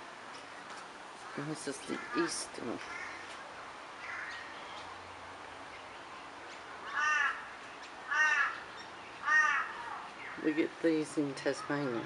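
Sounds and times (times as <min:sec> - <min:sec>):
faint outdoor background: 0:00.0 - 0:12.0
crow cawing: 0:01.9 - 0:03.4, 0:04.0 - 0:04.6, 0:06.8 - 0:10.1.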